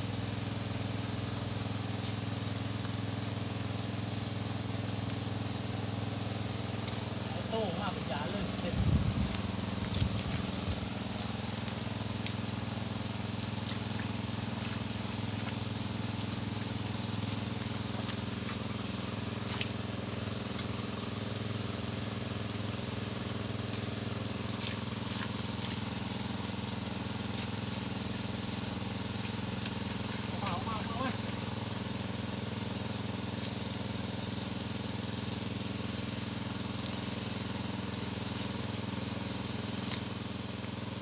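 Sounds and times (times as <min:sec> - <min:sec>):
small engine running: 0:00.0 - 0:41.0.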